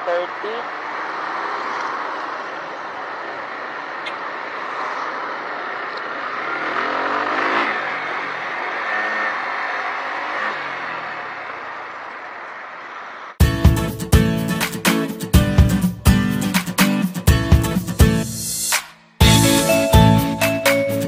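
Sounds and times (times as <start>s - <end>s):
motorcycle engine: 0.0s - 13.4s
wind and road noise: 0.0s - 13.4s.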